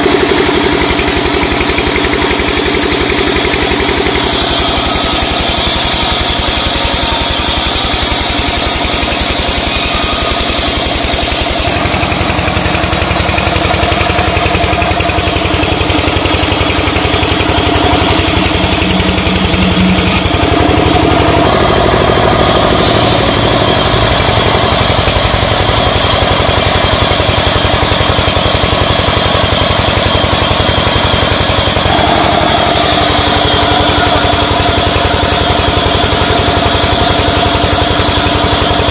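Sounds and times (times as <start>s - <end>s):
band saw cutting timber: 0.0s - 38.9s.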